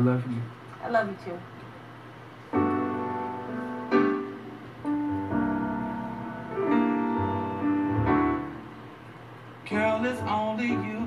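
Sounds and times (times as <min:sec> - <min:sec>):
slow keyboard chords: 0:02.5 - 0:11.0.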